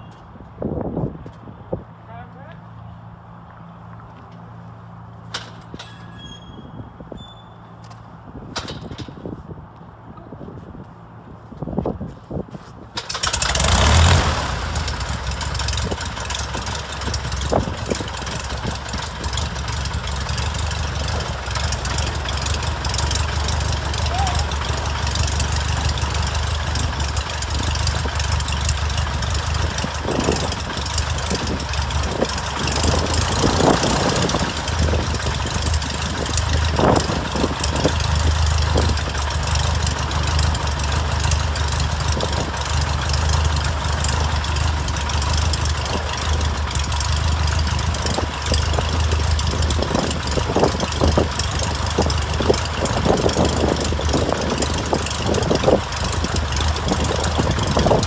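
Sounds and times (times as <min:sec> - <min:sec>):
aircraft engine idling: 0:13.0 - 0:58.0
engine bursts: 0:13.0 - 0:58.0.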